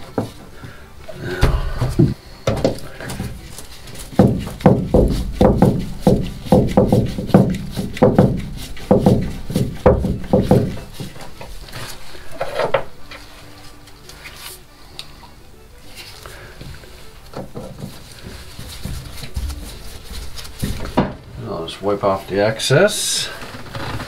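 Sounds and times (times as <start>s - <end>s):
screws creaking: 23.1s - 24.0s.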